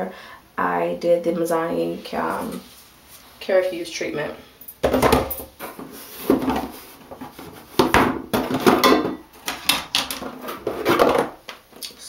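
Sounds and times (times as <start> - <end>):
plastic bottles knocking: 6.3 - 11.6.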